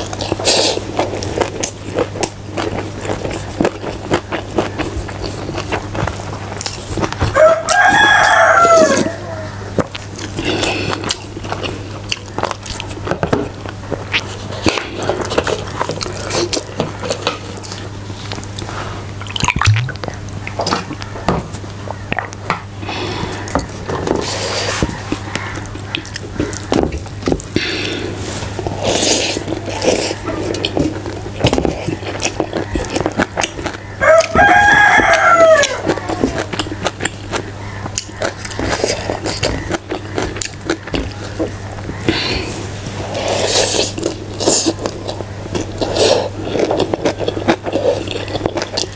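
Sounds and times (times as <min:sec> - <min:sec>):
chewing and smacking: 0:00.0 - 0:21.1, 0:23.4 - 0:48.9
rooster crowing: 0:07.3 - 0:09.6, 0:34.0 - 0:36.5
steady low hum: 0:15.2 - 0:34.0
wet chewing and lip smacks: 0:17.6 - 0:20.2.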